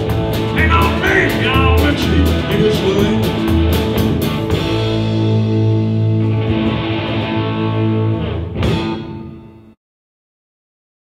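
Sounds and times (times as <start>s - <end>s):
drum and cymbal hits: 0.0s - 6.9s
sustained low bass notes: 0.0s - 9.0s
electric guitar chord ringing: 0.0s - 9.8s.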